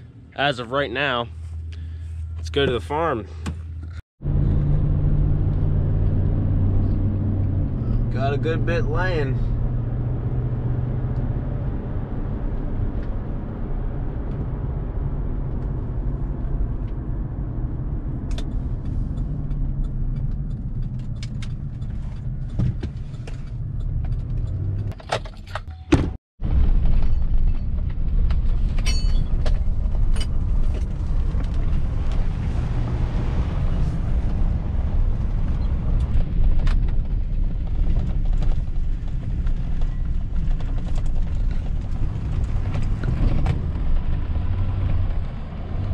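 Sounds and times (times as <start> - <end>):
truck engine and road rumble: 0.0 - 45.9.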